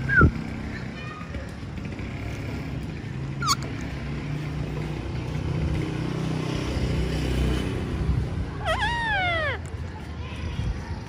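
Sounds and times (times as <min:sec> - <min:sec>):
parakeet squawk: 0:03.4 - 0:03.7, 0:08.5 - 0:09.6.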